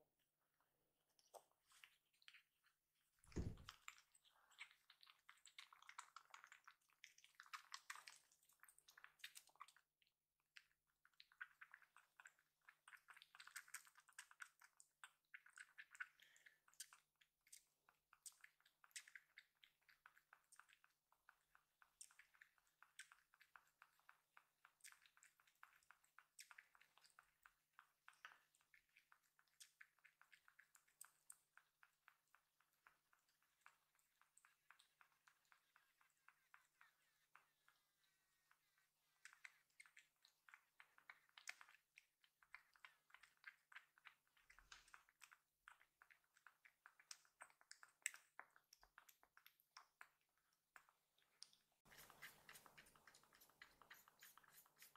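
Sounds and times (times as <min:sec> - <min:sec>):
kitten suckling: 0:00.4 - 0:54.9
soft thump: 0:03.3 - 0:03.7.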